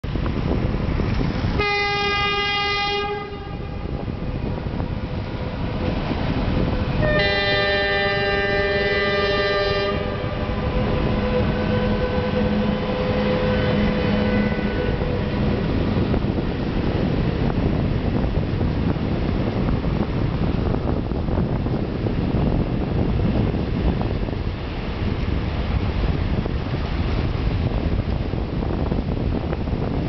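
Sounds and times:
train rumbling on rails: 0.0s - 30.0s
locomotive horn blasts: 1.5s - 4.2s, 6.9s - 16.0s.

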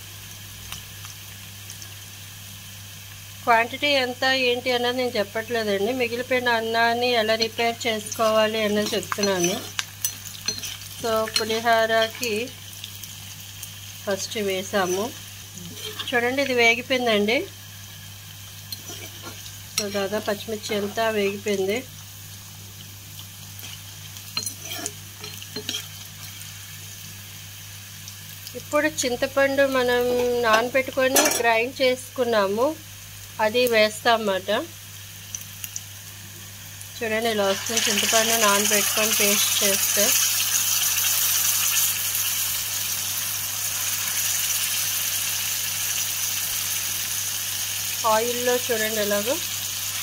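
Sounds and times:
food sizzling in hot oil: 0.0s - 50.0s
metal spoon scraping a pan: 7.4s - 12.5s, 14.6s - 16.6s, 18.7s - 21.5s, 23.6s - 26.6s, 30.1s - 31.5s.

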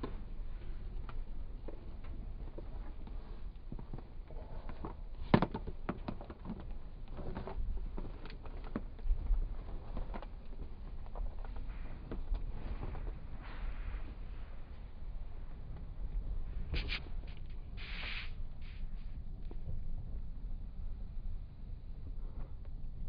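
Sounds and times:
low rumble: 6.6s - 23.0s.

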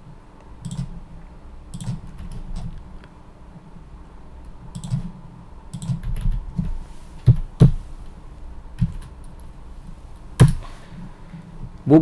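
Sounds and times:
typing on a keyboard: 4.8s - 5.1s, 5.7s - 7.4s.

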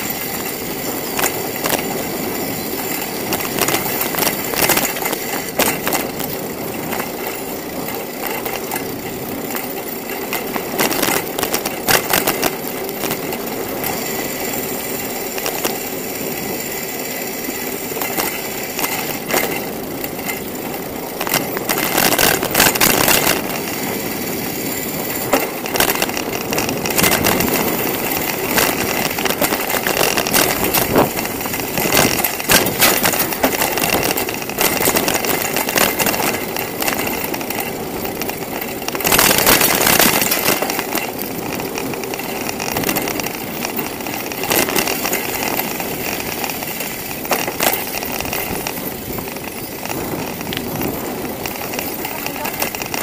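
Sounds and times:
bicycle clicks and rattles: 0.0s - 53.0s
tyre and wind rush: 17.4s - 53.0s.

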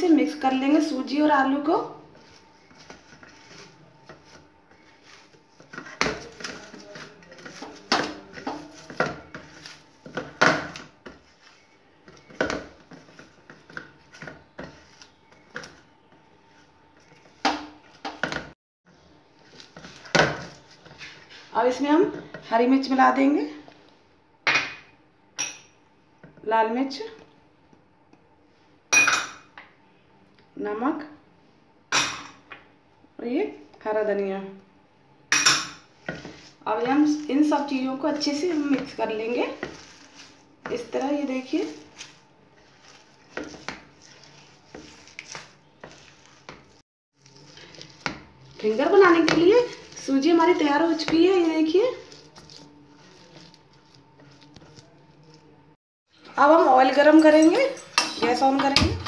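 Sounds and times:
hand squishing potato mash: 1.5s - 18.0s, 35.9s - 55.8s.

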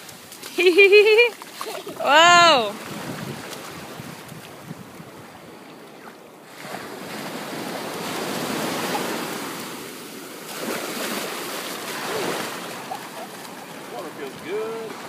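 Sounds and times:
surf breaking on shore: 6.4s - 15.0s.

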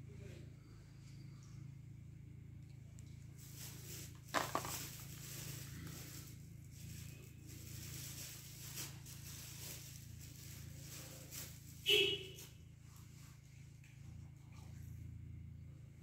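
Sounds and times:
steady low hum: 0.0s - 16.0s
soft rustling: 3.0s - 14.8s.

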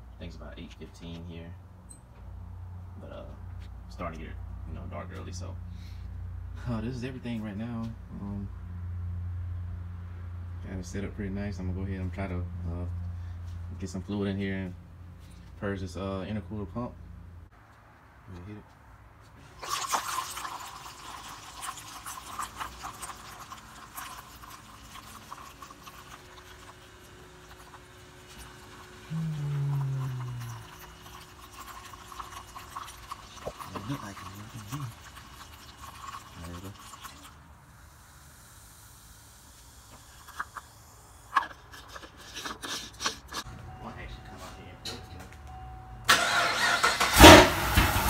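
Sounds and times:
faint pump hum: 19.4s - 46.1s
coolant gurgling and bubbling: 19.6s - 40.6s
cap scraping as it threads on: 41.3s - 43.5s.

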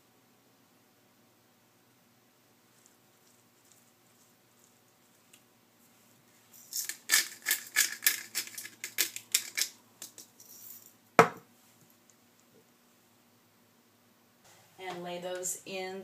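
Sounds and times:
pepper grinder ratcheting clicks: 6.7s - 10.2s
grinder knock on wooden board: 11.2s - 11.4s.

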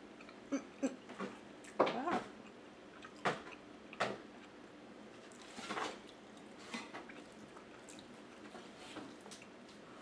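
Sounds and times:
wet chewing and mouth smacks: 2.4s - 4.1s, 5.2s - 9.6s.

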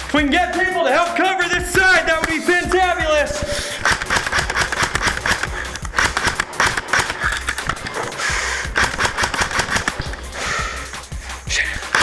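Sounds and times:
background music: 0.0s - 12.0s
airsoft guns firing rapidly: 1.6s - 10.4s.

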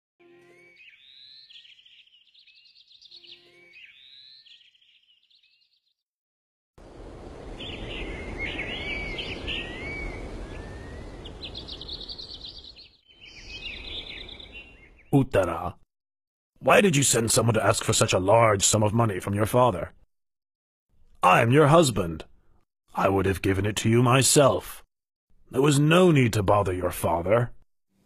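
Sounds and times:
birds chirping and singing: 0.5s - 6.0s, 7.6s - 15.6s.

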